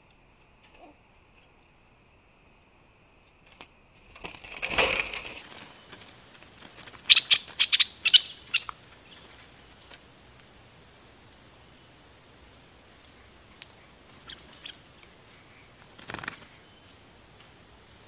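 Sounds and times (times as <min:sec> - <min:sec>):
bird wings flapping: 0:04.0 - 0:10.6, 0:13.0 - 0:18.0
sharp bird chirps: 0:07.0 - 0:09.4, 0:13.2 - 0:17.0.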